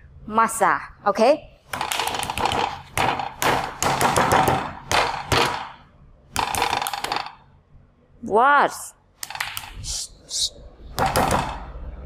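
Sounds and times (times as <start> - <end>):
rolling pin beating meat: 1.7 - 7.4, 10.9 - 11.8.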